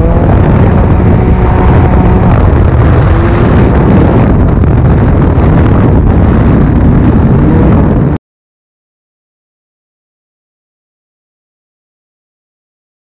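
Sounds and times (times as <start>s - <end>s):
snowmobile engine at high revs: 0.0s - 8.2s.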